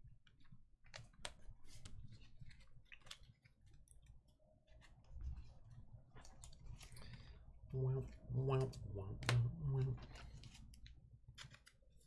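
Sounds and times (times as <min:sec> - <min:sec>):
trading cards clicking and scraping: 0:09.2 - 0:12.0.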